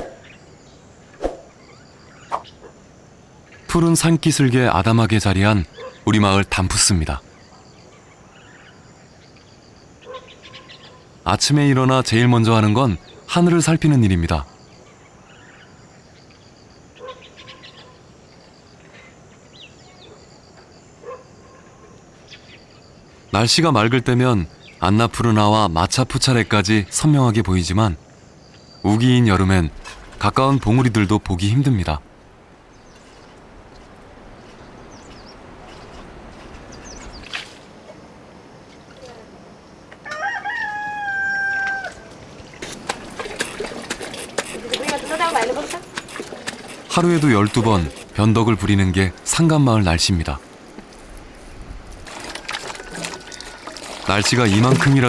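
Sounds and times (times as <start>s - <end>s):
birds chirping: 0.0s - 38.0s, 42.4s - 55.0s
rooster crowing: 40.0s - 42.2s, 52.5s - 54.0s.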